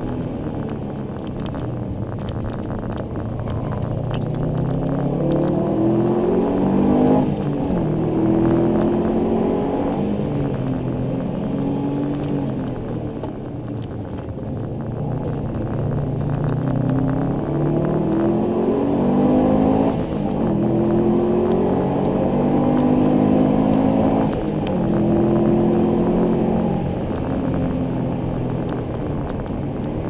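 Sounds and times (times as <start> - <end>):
car engine accelerating through gears: 0.0 - 30.0.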